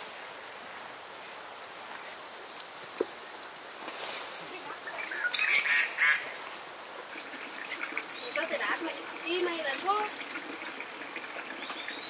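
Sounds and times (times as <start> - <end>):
bird calling: 4.5 - 6.5, 11.4 - 12.0.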